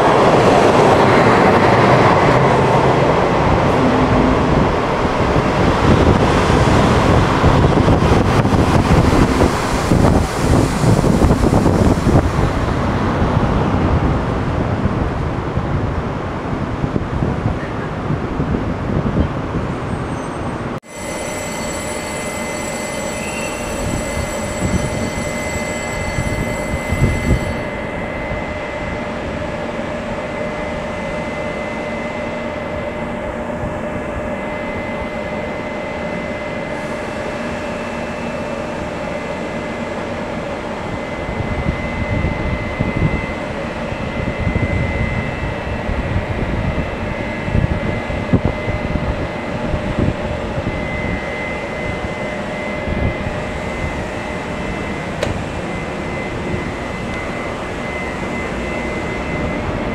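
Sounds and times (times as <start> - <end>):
locomotive equipment humming: 0.0 - 14.9, 19.7 - 59.9
thin high whine: 19.9 - 59.9.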